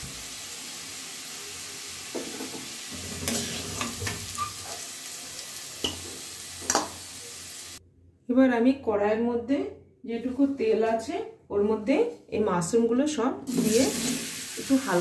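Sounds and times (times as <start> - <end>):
potatoes sizzling in hot oil: 0.0 - 7.8, 13.5 - 15.0
metal spoon scraping a pan: 2.2 - 4.9.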